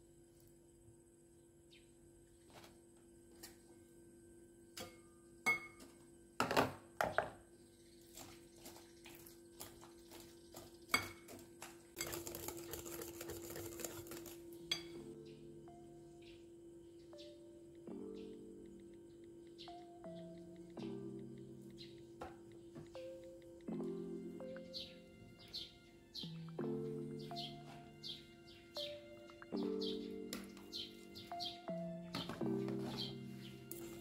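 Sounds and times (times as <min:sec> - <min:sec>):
faint background music: 0:00.0 - 0:34.0
continuous scraping: 0:08.0 - 0:15.0
utensils and dishes clinking: 0:12.0 - 0:15.1.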